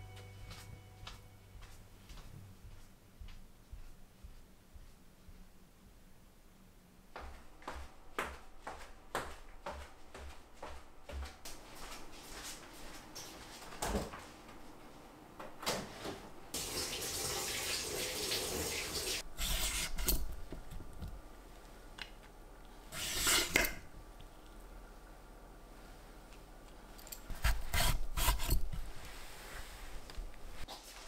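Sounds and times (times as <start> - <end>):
cucumber scraped on cutting board: 19.4 - 20.1, 22.9 - 23.8, 27.4 - 28.7.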